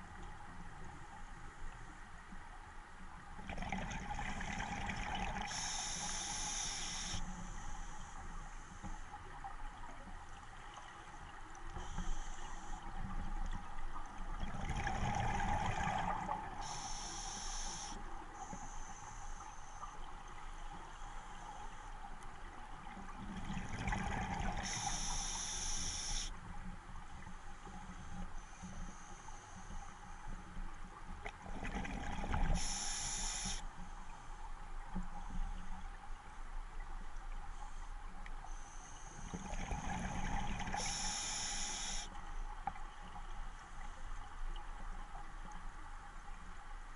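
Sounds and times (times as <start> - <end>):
regulator inhale hiss: 5.4 - 9.3, 11.8 - 13.2, 16.6 - 22.0, 24.6 - 26.4, 27.4 - 30.6, 32.5 - 34.3, 37.5 - 42.2
exhaled bubbles rumbling: 14.3 - 16.6.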